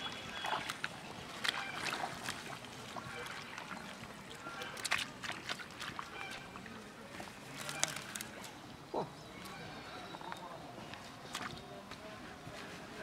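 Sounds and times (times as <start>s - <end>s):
small water splashes: 0.0s - 8.7s
hands squelching in mud: 0.2s - 8.5s.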